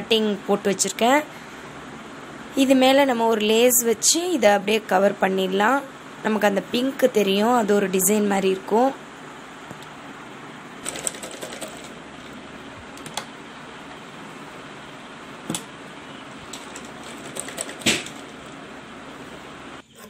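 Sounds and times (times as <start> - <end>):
sewing machine running: 10.8 - 12.4, 16.5 - 18.7.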